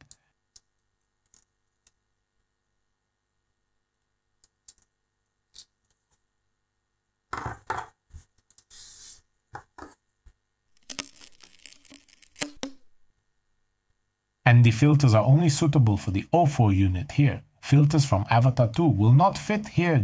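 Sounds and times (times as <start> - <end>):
small clicks and rubbing: 0.0 - 2.0, 8.2 - 8.7, 10.7 - 12.7.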